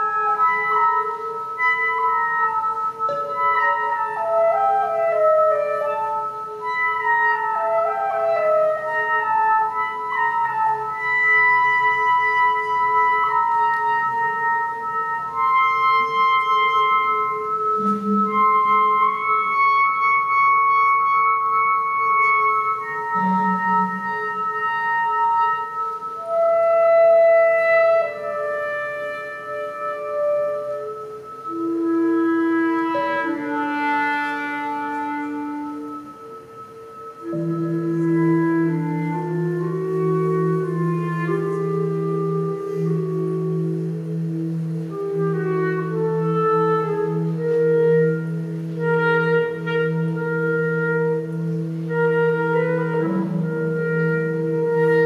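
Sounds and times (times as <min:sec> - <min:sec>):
clarinet playing: 0:00.0 - 0:55.0.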